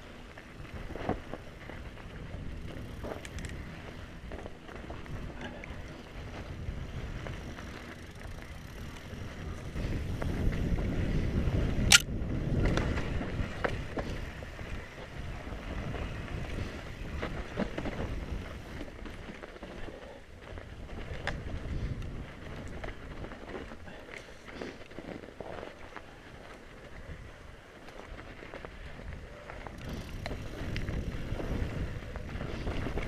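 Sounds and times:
bike tyres rolling and rattling: 0.0s - 33.0s.

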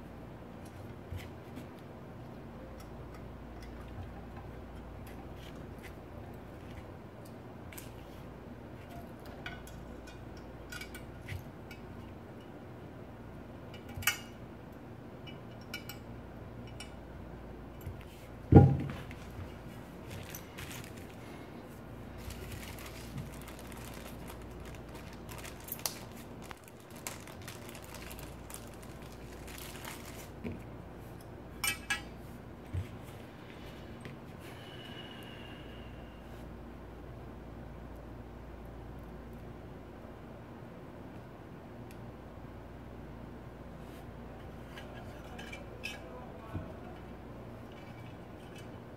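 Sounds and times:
heavy thump on bench: 18.5s - 19.1s
plastic bags crinkling: 20.0s - 30.5s.

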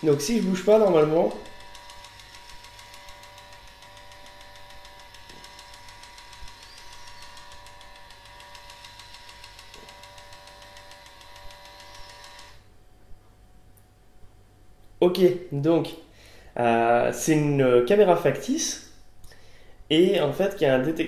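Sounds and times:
small electric motor whirring: 0.0s - 12.7s.

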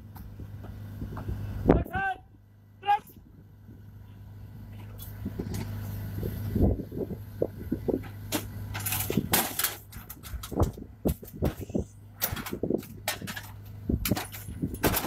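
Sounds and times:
steady low hum: 0.0s - 15.0s
metallic clanks and knocks: 8.0s - 15.0s.

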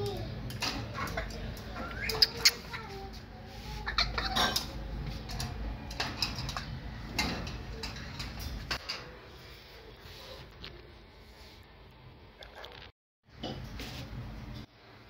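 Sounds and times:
parrot squeaky calls: 1.0s - 3.0s, 3.7s - 4.6s.

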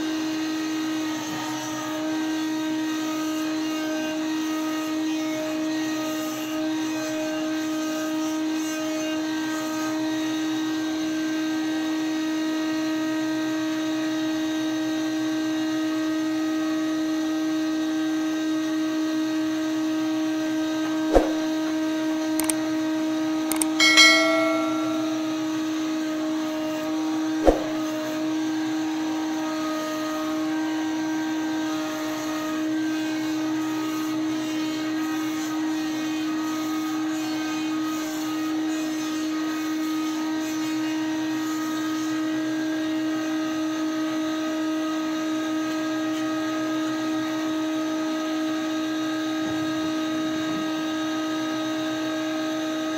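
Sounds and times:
ringing metallic clank: 23.5s - 25.6s.

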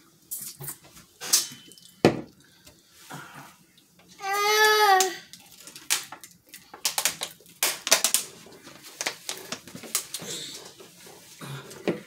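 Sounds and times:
plastic bottle crinkling: 5.3s - 11.2s.

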